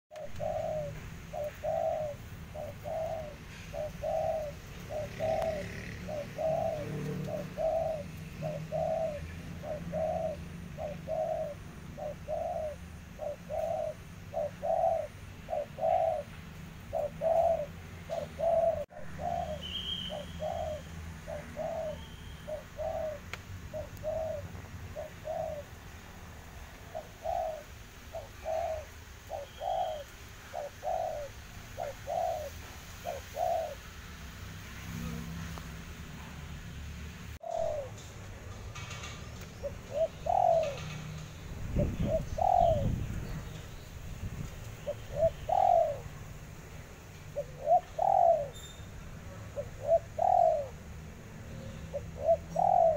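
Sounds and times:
dove cooing: 0.1 - 33.9, 37.4 - 43.6, 44.3 - 46.6, 47.3 - 52.9
small bird chirping: 16.9 - 24.4, 27.0 - 32.6, 47.4 - 50.8.

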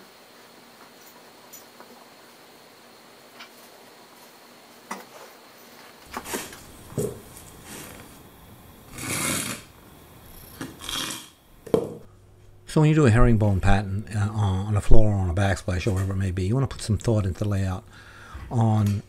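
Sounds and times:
scraping on tile floor: 5.1 - 9.8, 10.4 - 11.3.

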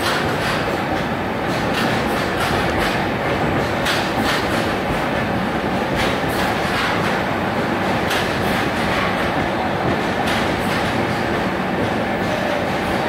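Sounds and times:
wheels clacking over rail joint: 0.0 - 5.2, 5.9 - 7.3
train wheels rumbling on rail: 0.0 - 13.0.

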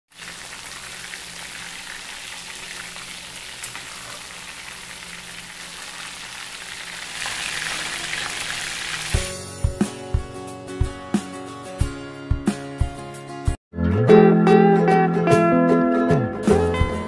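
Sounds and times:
chicken deep-frying in oil: 0.1 - 9.4.

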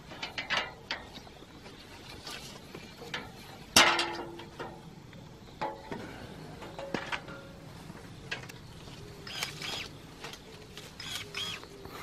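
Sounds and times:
electric pruning shears snipping: 9.2 - 10.0, 11.0 - 11.7.

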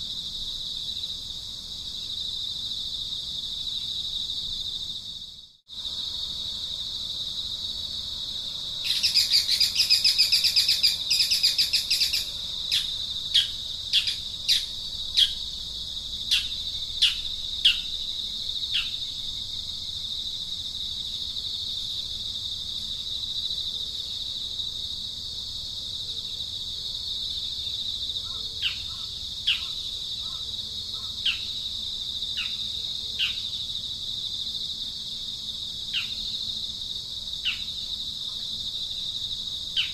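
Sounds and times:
insect drone: 0.0 - 39.9
birds calling: 8.9 - 15.4.

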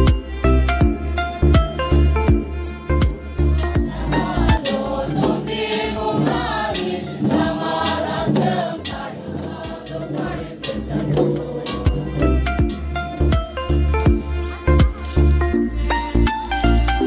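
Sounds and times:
steady beat and bass: 0.0 - 17.0
choir singing: 3.8 - 12.4.

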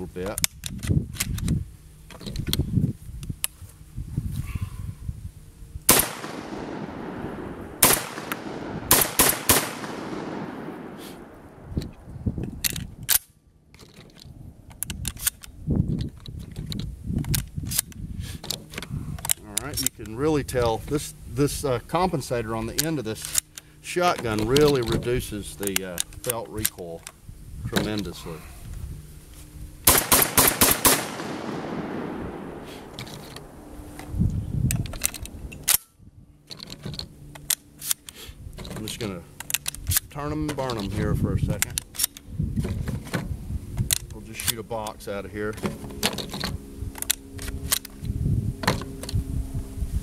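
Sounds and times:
shotgun firing: 5.9 - 11.8, 29.9 - 33.7
shotgun shells loading clicks: 5.9 - 20.2, 22.6 - 27.2, 29.9 - 35.9, 36.5 - 42.3, 43.8 - 45.0, 46.0 - 48.1.

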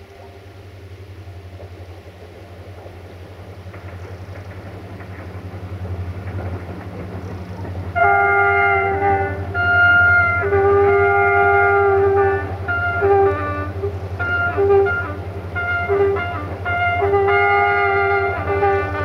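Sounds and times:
locomotive engine rumble: 0.0 - 19.0
train horn chord: 7.9 - 19.0.

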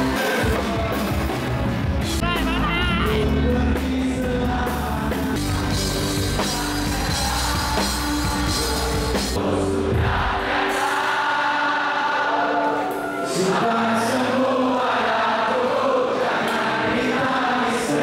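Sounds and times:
live rock band playing: 0.0 - 11.1
voices singing: 2.2 - 18.0.

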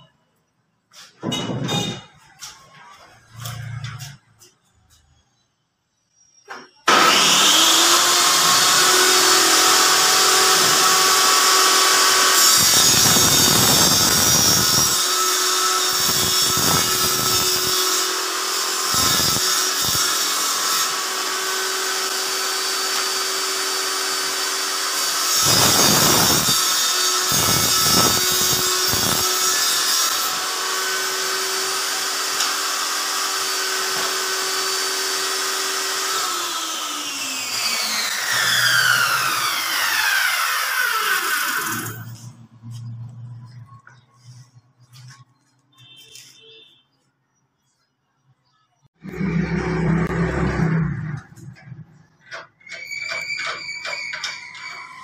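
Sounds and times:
table saw whining: 6.4 - 42.4, 49.0 - 55.0
saw blade winding down: 6.9 - 42.3.

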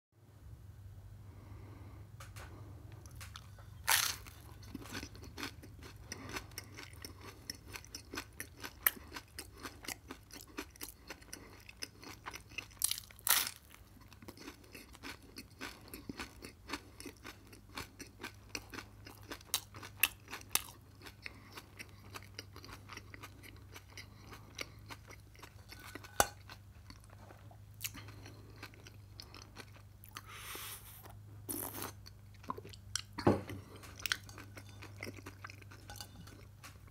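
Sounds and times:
crunching and chewing: 2.3 - 36.9
bite into crunchy sandwich: 3.1 - 5.6.

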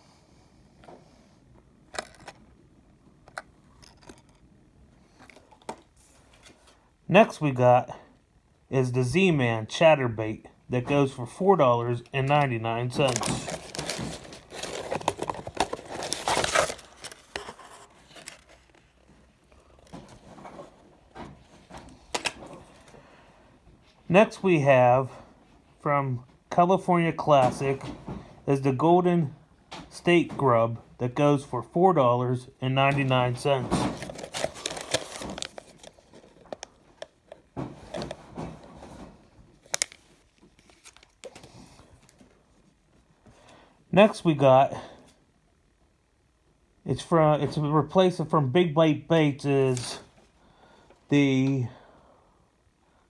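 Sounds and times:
plastic blister pack crinkling: 1.9 - 2.4, 3.3 - 4.4, 12.0 - 19.2, 33.9 - 38.2, 39.6 - 42.2.

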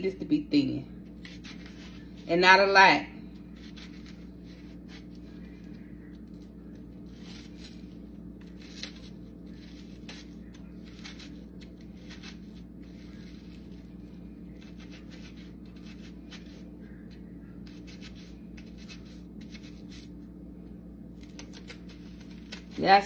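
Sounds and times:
steady low hum: 0.0 - 23.0
knife scraping onion: 3.6 - 5.2, 7.0 - 13.9, 14.6 - 16.7, 17.6 - 20.1.

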